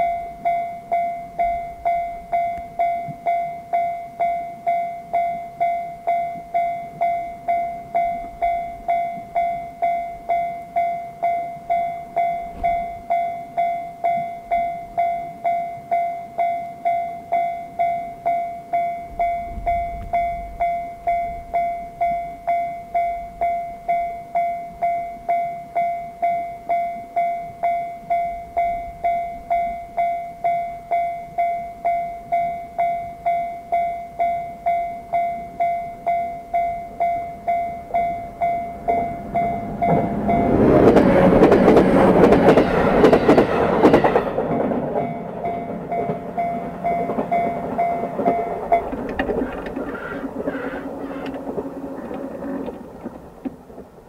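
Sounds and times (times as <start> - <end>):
level crossing electronic bell: 0.0 - 41.0
electric train passing: 0.0 - 54.0
train wheel clatter: 11.2 - 14.7, 32.3 - 54.0.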